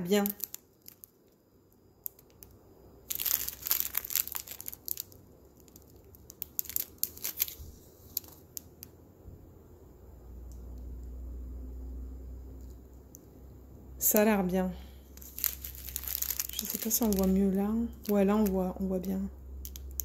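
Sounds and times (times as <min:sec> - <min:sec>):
plastic bags crinkling: 0:00.0 - 0:01.3, 0:02.0 - 0:08.6, 0:15.0 - 0:18.9, 0:19.6 - 0:20.0.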